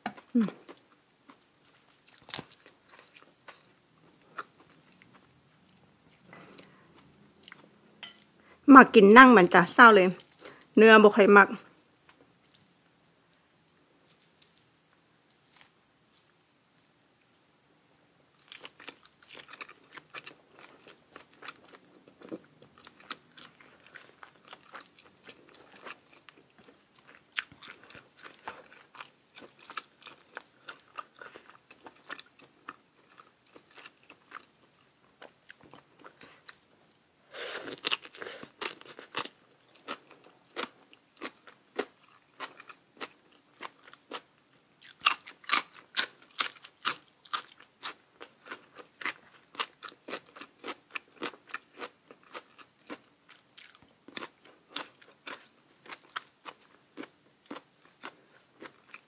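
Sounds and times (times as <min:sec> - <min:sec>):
person chewing crunchy food: 0:00.0 - 0:08.3, 0:18.4 - 0:59.0.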